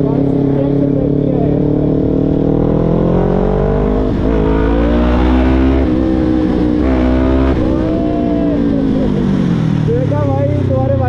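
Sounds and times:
motorcycle engine running: 0:00.0 - 0:11.0.

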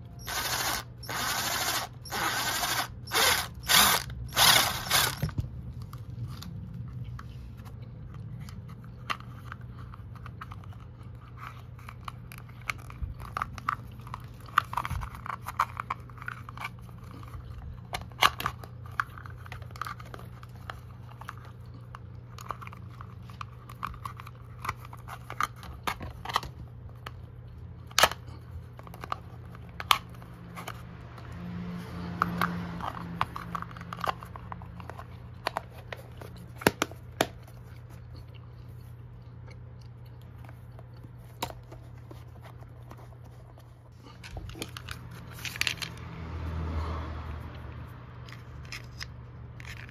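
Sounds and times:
plastic container clicks and crinkles: 0:44.2 - 0:46.0.

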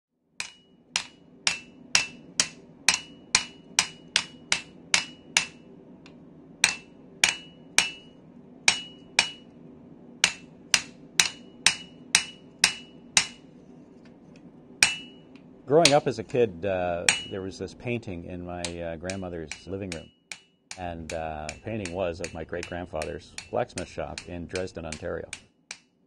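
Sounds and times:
hammer striking iron on anvil: 0:00.4 - 0:05.7, 0:06.6 - 0:09.5, 0:10.2 - 0:13.5, 0:14.8 - 0:16.1, 0:17.0 - 0:17.6, 0:18.6 - 0:25.9
faint low hum: 0:00.4 - 0:25.5.

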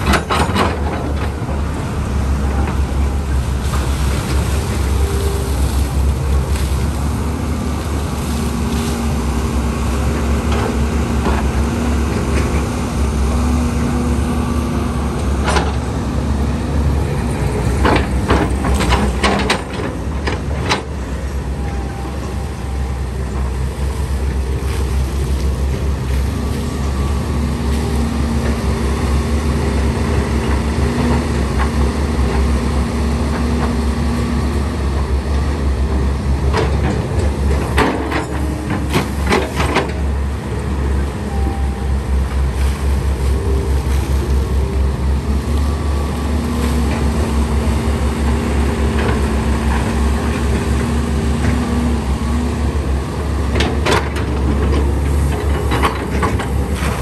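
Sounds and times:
metallic clanks of excavator bucket: 0:00.0 - 0:01.4
excavator engine and hydraulics: 0:00.0 - 0:57.0.

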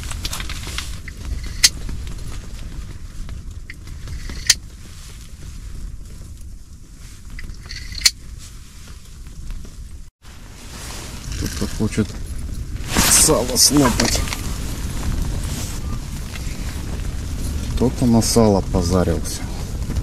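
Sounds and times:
strong wind buffeting a tent: 0:00.0 - 0:20.0
fishing rod clicks: 0:07.4 - 0:08.2.

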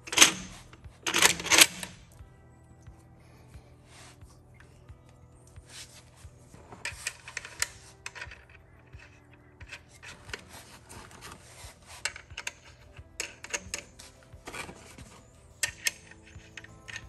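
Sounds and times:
light metal clicks and clinks: 0:06.8 - 0:17.0.

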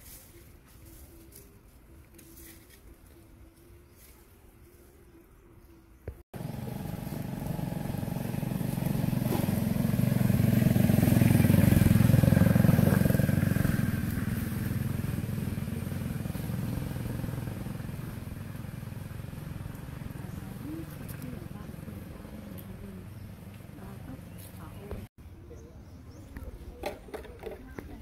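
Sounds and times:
motor vehicle driving past: 0:06.4 - 0:25.1.

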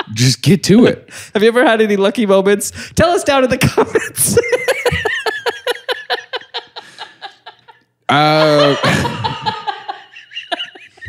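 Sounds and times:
men laughing: 0:03.8 - 0:11.0.

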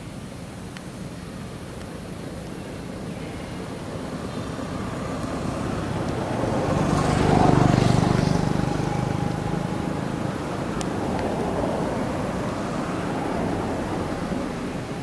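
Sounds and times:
motor vehicle passing by: 0:03.5 - 0:15.0.

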